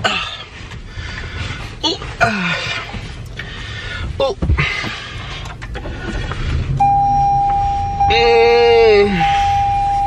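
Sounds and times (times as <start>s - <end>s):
car engine rumble: 0.0s - 10.0s
steady electronic beep: 6.8s - 10.0s.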